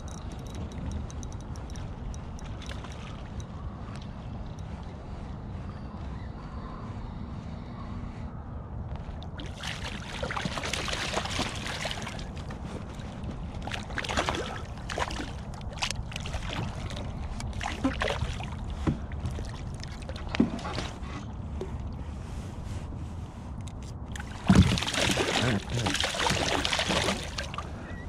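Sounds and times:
low wind rumble: 0.0 - 28.0.

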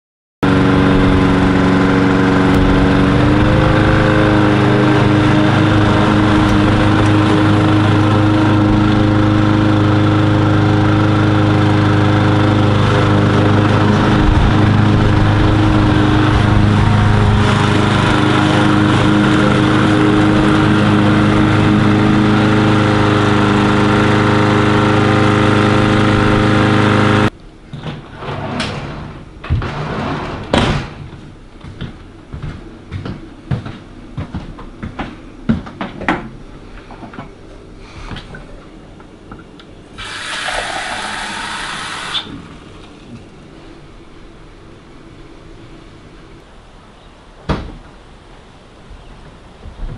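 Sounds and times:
lawn mower engine running: 0.4 - 27.4, 38.8 - 46.4.

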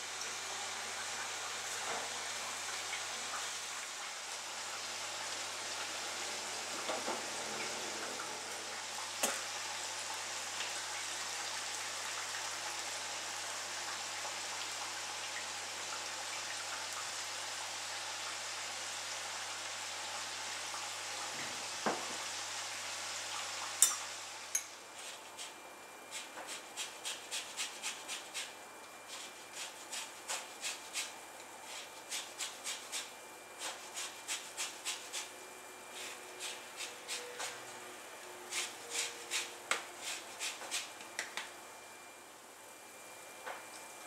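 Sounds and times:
grater scraping lemon peel: 24.9 - 28.5, 29.1 - 35.3, 35.9 - 37.6, 38.5 - 41.0.

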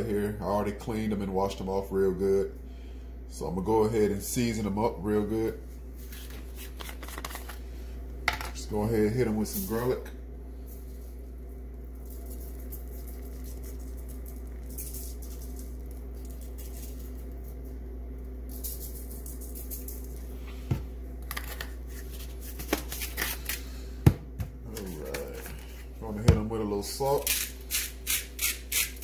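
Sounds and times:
steady low hum: 0.0 - 29.0
spice shaker sprinkling: 10.7 - 20.6.

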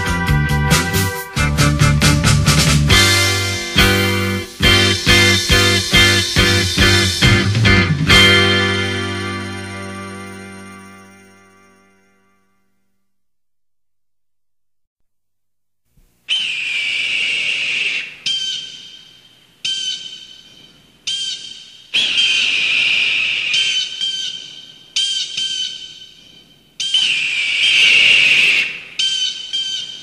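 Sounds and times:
sharply struck ringing notes: 2.9 - 12.5.

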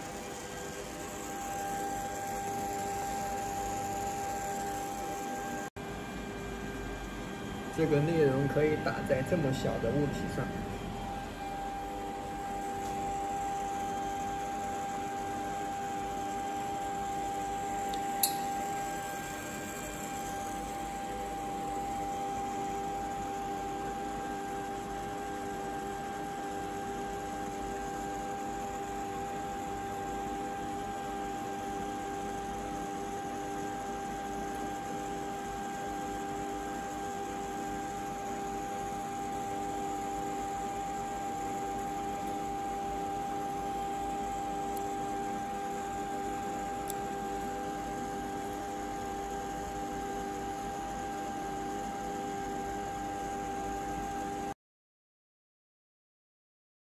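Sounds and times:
electrical hum: 0.0 - 54.5
constant mid-pitched tone: 6.3 - 28.3
sharp click: 17.9 - 18.6.

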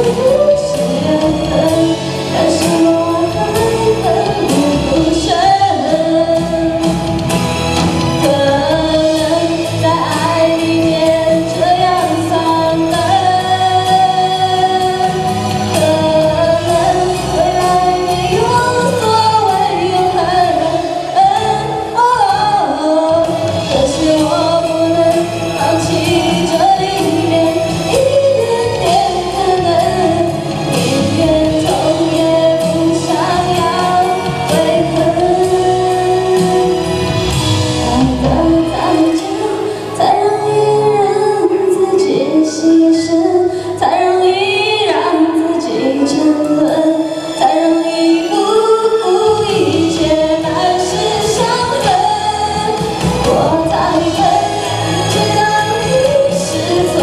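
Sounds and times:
instrumental accompaniment: 0.0 - 57.0
woman singing pop song: 0.0 - 57.0.

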